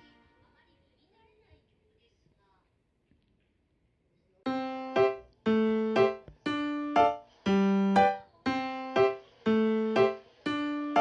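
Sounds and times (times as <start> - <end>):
keyboard tune: 0.0 - 0.3, 4.5 - 11.0.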